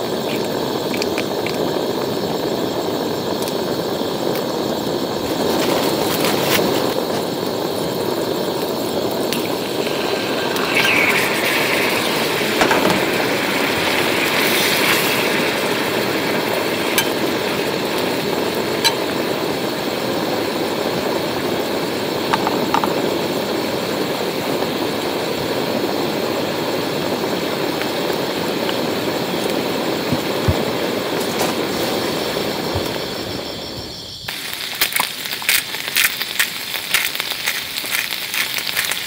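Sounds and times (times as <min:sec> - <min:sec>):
food frying in a pan: 0:00.0 - 0:39.0
sharp clicks and pops: 0:00.2 - 0:01.6, 0:34.3 - 0:39.0.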